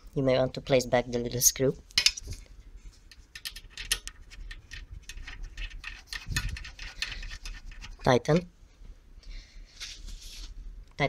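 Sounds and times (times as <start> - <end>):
metallic clicks and scratches: 3.1 - 8.5.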